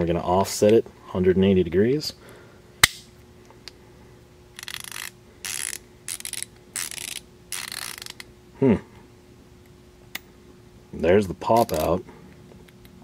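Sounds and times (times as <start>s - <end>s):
rapid ratchet clicking: 4.6s - 8.2s
sharp ratchet click: 4.6s - 8.3s.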